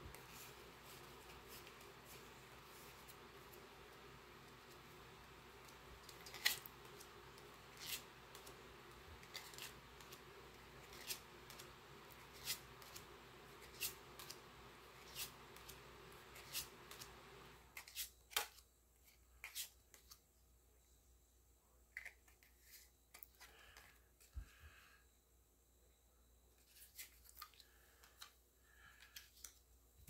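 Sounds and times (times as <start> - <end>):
faint steady hum: 0.0 - 30.0
cards snapping: 6.1 - 7.0.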